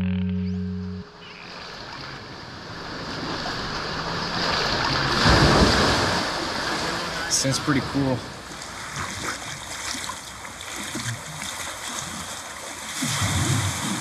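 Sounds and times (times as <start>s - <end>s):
background music low note: 0.0s - 1.6s
sea water washing: 1.4s - 14.0s.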